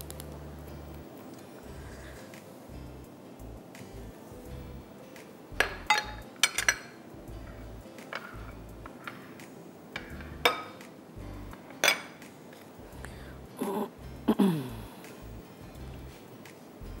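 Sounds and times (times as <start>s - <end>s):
faint background music: 0.0s - 17.0s
glass and utensils clinking: 5.6s - 10.8s, 11.5s - 12.3s.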